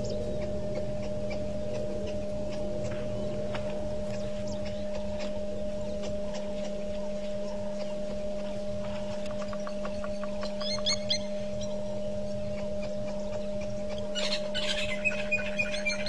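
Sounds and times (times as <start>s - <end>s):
high bird chirps: 0.0s - 8.6s, 9.2s - 16.0s
electrical hum: 0.0s - 16.0s.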